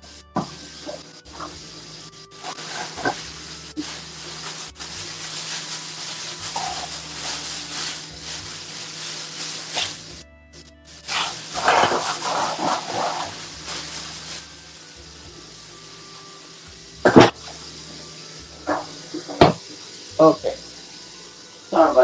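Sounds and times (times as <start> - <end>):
faucet running into water: 0.4 - 10.1, 11.1 - 22.0.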